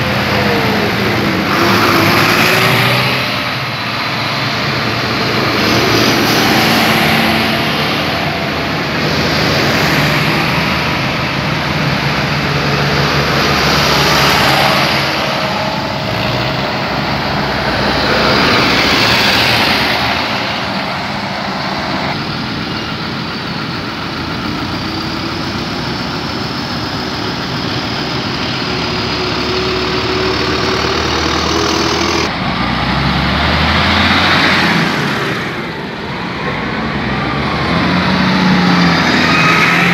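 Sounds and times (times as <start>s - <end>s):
tractor engines passing: 0.0s - 39.9s
tyres on road: 0.0s - 39.9s.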